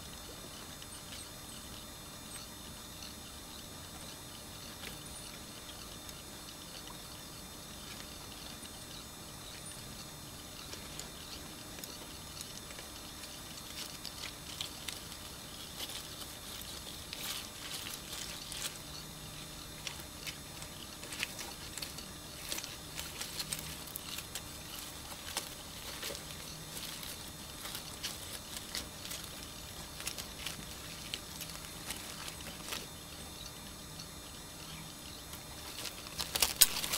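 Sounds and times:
wheelchair rolling over gravel: 35.5 - 36.9.

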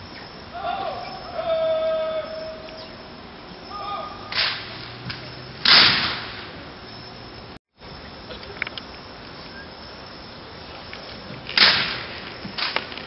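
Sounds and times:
person shouting: 0.5 - 2.7, 3.7 - 4.3
sharp cracks: 4.3 - 6.6, 11.4 - 13.0.

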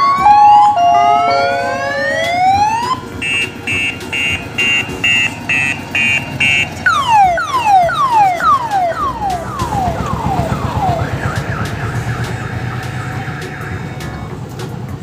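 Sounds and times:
electronic siren cycling tones: 0.0 - 14.3
diesel engine rumble: 0.0 - 15.0.

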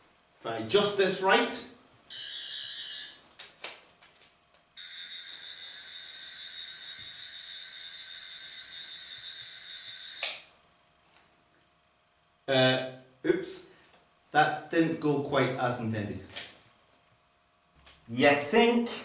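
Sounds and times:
toy electronic buzz: 2.1 - 3.2, 4.8 - 10.5.

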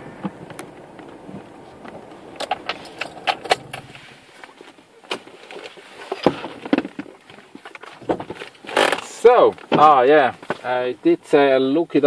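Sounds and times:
low rumble: 0.0 - 5.0.

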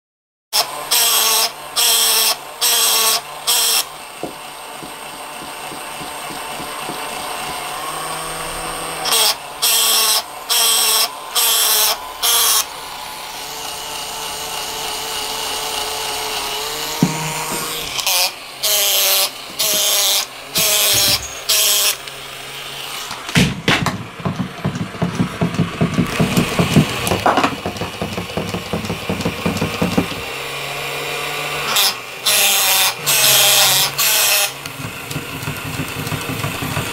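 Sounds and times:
small toy motor whirring: 0.6 - 23.2, 29.3 - 36.9
rapid clicking of waddling toy: 34.6 - 36.9.

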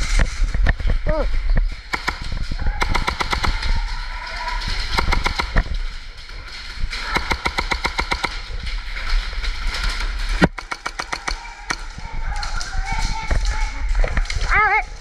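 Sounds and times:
airsoft guns firing: 1.9 - 4.1, 4.7 - 6.0, 6.9 - 12.5.

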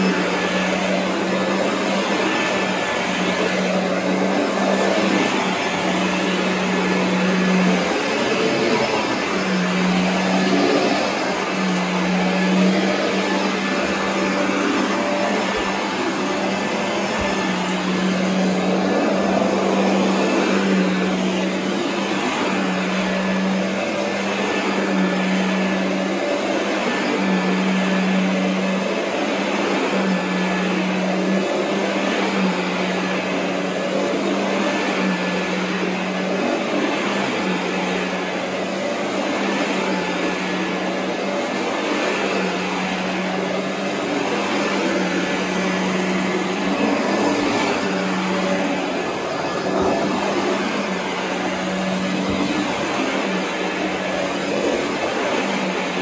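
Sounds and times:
vacuum cleaner on carpet: 0.0 - 56.0.

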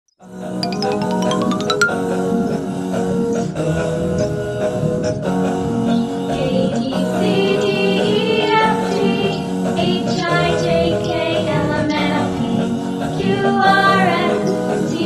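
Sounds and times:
music with singing voice: 0.6 - 2.4.

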